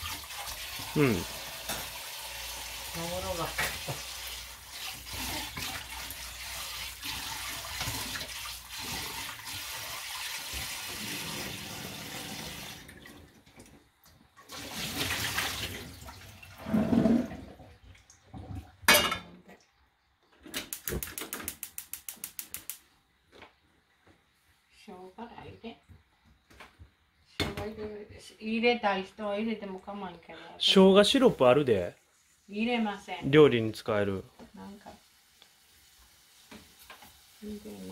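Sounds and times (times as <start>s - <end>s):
tap water running into saucepan: 0.0s - 13.5s, 14.4s - 16.6s, 34.4s - 37.9s
quick run of even clicks: 20.6s - 22.8s.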